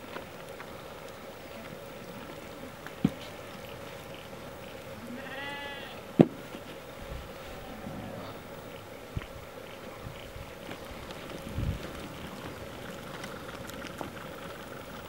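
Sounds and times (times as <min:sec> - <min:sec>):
lamb bleating: 0:05.0 - 0:06.1.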